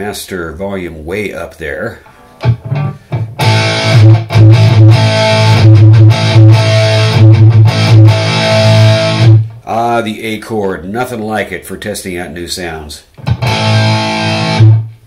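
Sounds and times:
distorted electric guitar chords: 2.1s - 9.6s, 13.2s - 15.0s.

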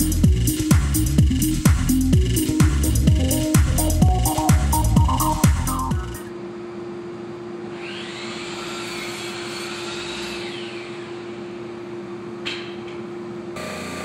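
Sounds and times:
high whine: 1.0s - 6.5s
cnc router running: 7.6s - 11.7s, 13.6s - 14.0s.

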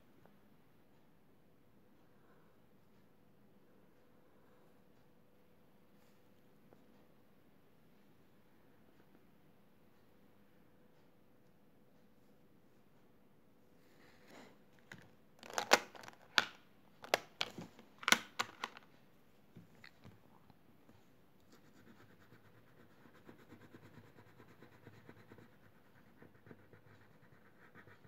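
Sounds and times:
crayon scratching on paper: 21.5s - 28.0s.

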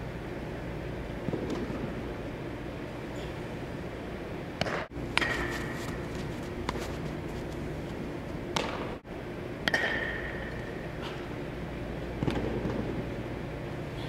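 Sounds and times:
indoor hall hum: 0.0s - 14.0s
metal bat hitting a ball: 4.6s - 5.8s, 9.6s - 10.6s.

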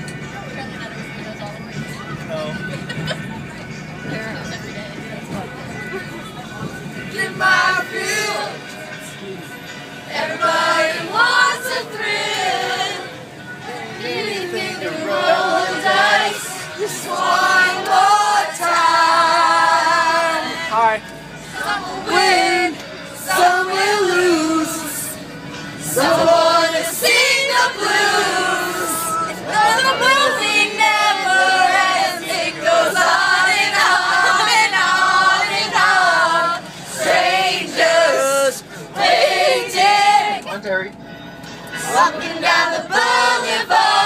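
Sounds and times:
group of teenagers singing: 7.1s - 8.6s, 10.0s - 40.5s, 41.8s - 44.0s.

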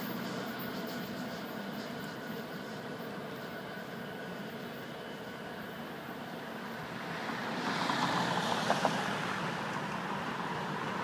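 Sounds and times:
road traffic noise: 0.0s - 11.0s
vehicle passing: 6.8s - 11.0s.

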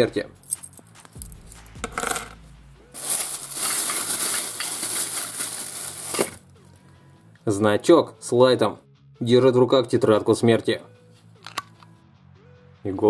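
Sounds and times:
plastic bag crinkling: 3.0s - 6.4s.

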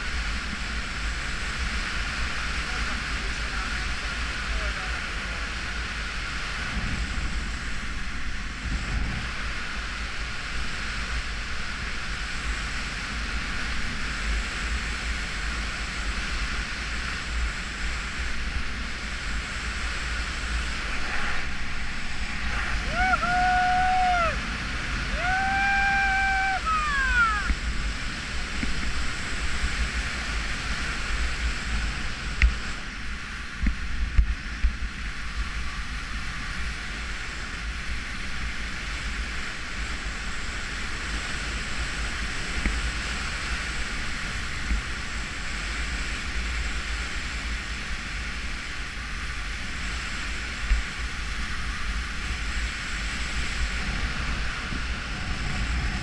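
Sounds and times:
wind rushing over microphone: 0.0s - 56.0s
person whooping: 22.7s - 27.6s.

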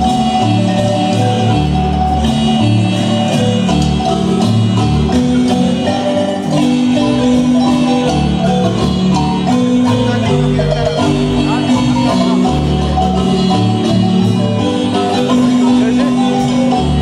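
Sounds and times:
marimba band playing: 0.0s - 17.0s.

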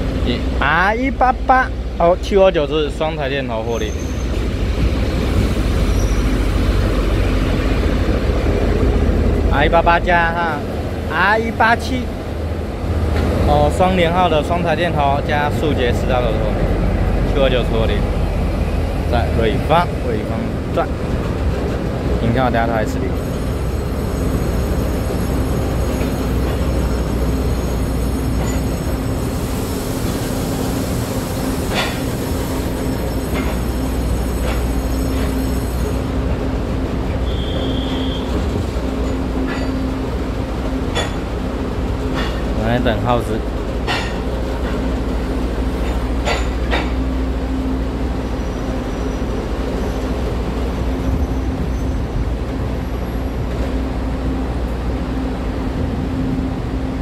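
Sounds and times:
diesel locomotive drone: 0.0s - 57.0s
brief squeal: 3.7s - 4.4s, 5.8s - 6.5s, 37.2s - 39.8s, 48.4s - 50.2s, 51.0s - 52.1s
freight wagons rolling on rails: 18.7s - 47.3s.

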